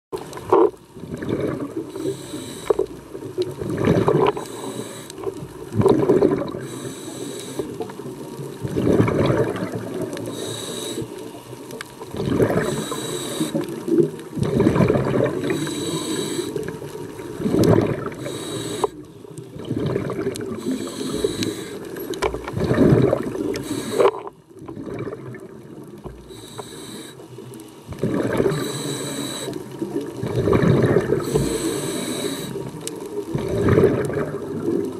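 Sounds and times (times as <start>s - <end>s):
gurgling exhaust bubbles: 0.5s - 2.0s, 3.1s - 4.4s, 5.6s - 6.7s, 8.5s - 10.2s, 12.1s - 12.9s, 13.9s - 15.8s, 16.6s - 18.4s, 19.5s - 21.4s, 22.4s - 23.6s, 24.6s - 26.3s, 27.9s - 28.8s, 29.7s - 31.5s, 33.3s - 34.9s
regulator hiss on inhalation: 1.9s - 3.0s, 4.3s - 5.4s, 6.6s - 7.9s, 10.2s - 11.5s, 12.6s - 13.8s, 15.4s - 16.8s, 17.4s - 19.2s, 20.5s - 22.1s, 23.5s - 24.3s, 26.2s - 27.4s, 28.5s - 29.7s, 31.1s - 32.8s.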